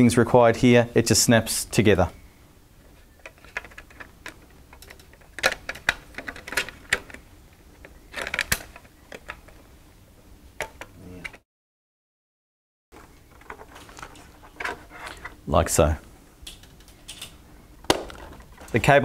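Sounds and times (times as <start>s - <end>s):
plastic pieces snapping together: 7.8s - 9.5s.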